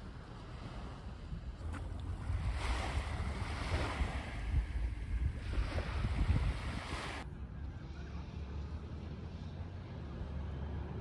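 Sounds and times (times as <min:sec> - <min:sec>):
sea waves washing in: 0:00.0 - 0:07.3
wind rumbling on microphone: 0:00.0 - 0:07.7.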